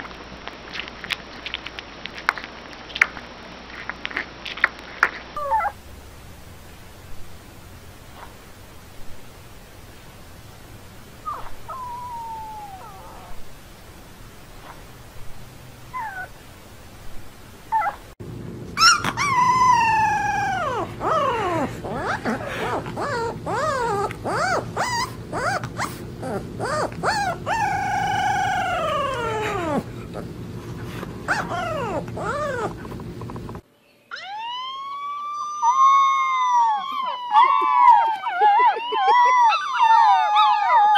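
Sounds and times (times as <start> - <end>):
steady hum: 5.3 - 33.7
newborn puppy squeaks: 5.4 - 5.8, 11.3 - 13.4, 18.8 - 29.9, 31.3 - 32.8
puppy howling: 5.4 - 5.9, 11.2 - 13.5, 15.9 - 16.4, 17.7 - 18.1, 18.8 - 33.4, 34.1 - 40.9.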